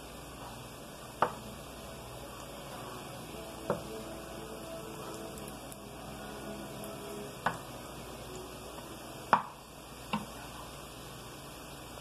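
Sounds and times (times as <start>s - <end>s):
frying hiss: 0.0s - 12.0s
spatula knocking on frying pan: 1.2s - 1.4s, 9.3s - 10.3s.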